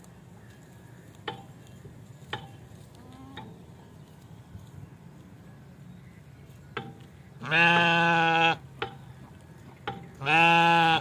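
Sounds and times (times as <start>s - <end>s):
sheep bleating: 7.4s - 8.6s, 10.2s - 11.0s.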